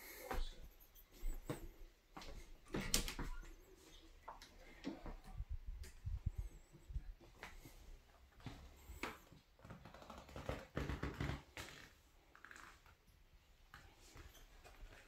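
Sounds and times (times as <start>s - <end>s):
faint footsteps: 0.0s - 11.8s.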